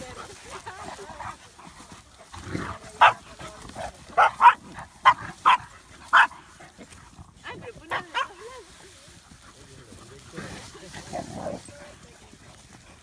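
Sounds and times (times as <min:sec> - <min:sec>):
dog barking: 0:03.0 - 0:03.2, 0:04.2 - 0:06.4, 0:07.9 - 0:08.4.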